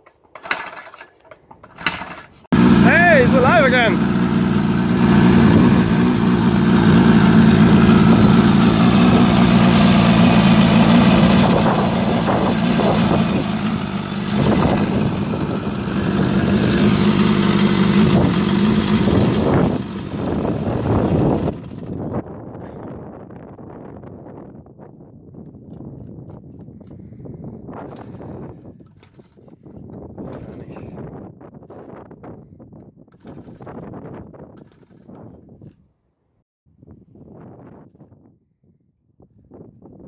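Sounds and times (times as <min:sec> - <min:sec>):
motorcycle engine running: 0:02.5 - 0:22.3.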